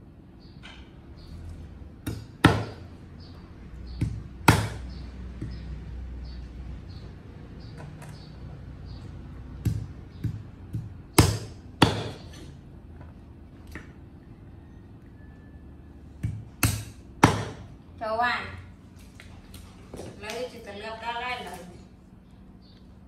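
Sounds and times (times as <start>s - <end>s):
cleaver chopping meat on wood: 2.0s - 2.9s, 3.9s - 5.8s, 9.5s - 12.4s, 16.2s - 17.7s.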